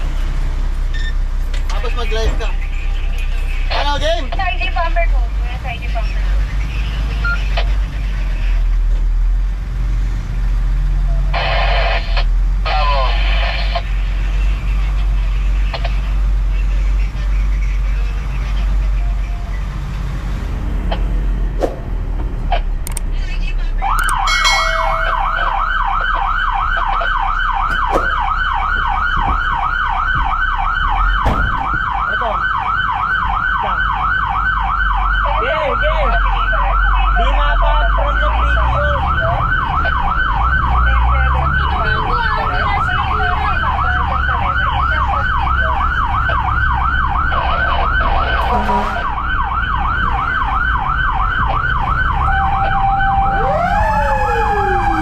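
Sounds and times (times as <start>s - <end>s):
truck engine running: 0.0s - 12.7s, 38.5s - 55.0s
fire engine siren yelping: 23.8s - 55.0s.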